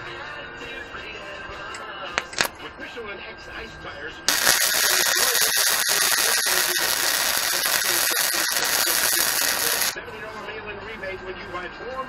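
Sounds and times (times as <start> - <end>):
welding arc crackling hiss: 2.2 - 2.5, 4.3 - 10.0.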